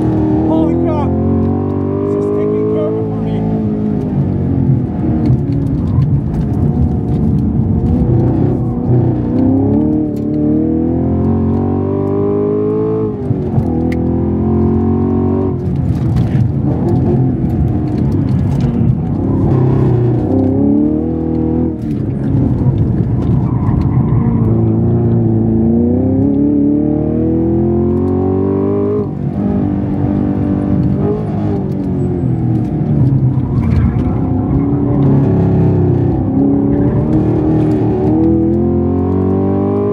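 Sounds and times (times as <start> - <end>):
car engine revving from inside: 0.0 - 5.9, 24.4 - 31.8, 32.6 - 39.9.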